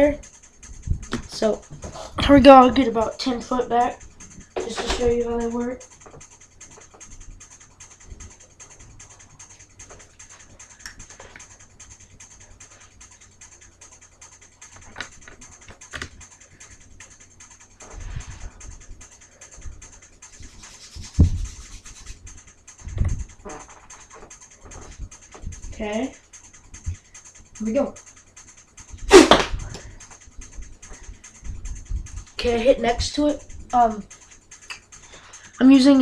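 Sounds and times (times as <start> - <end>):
dull low thumps: 28.9 - 33.8.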